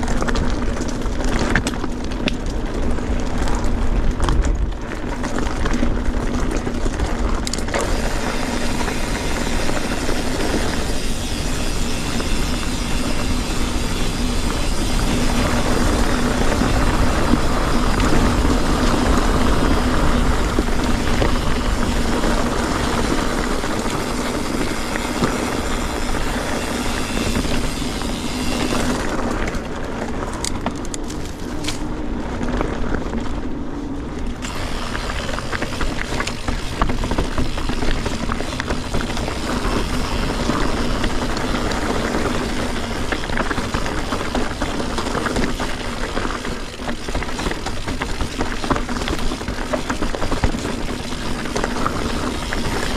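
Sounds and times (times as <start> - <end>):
bike rattling: 0.0 - 52.9
bike tyres rolling over stones: 0.0 - 52.9
wind buffeting microphone: 0.0 - 52.9.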